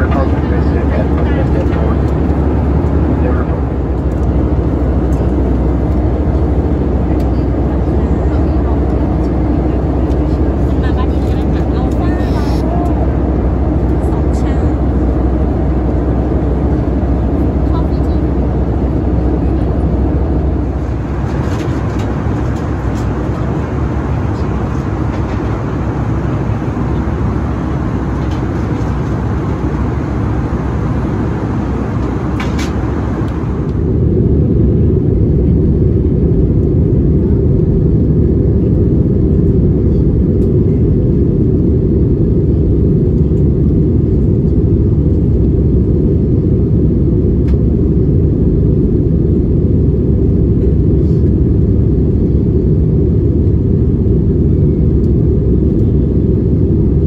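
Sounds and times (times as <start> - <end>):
airplane cabin engine rumble: 0.0 - 57.0.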